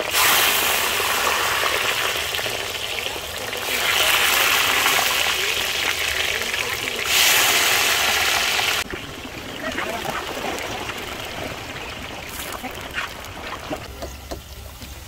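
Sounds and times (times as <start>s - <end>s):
potatoes sizzling in hot oil: 0.0s - 13.4s.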